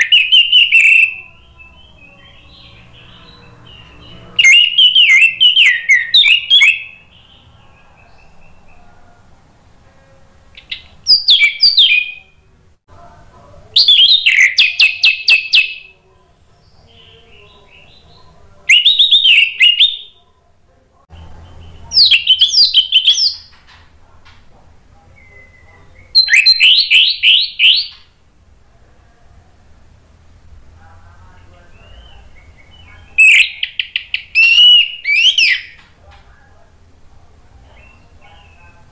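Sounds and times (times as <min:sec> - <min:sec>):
thrush singing: 0:00.0 - 0:12.7.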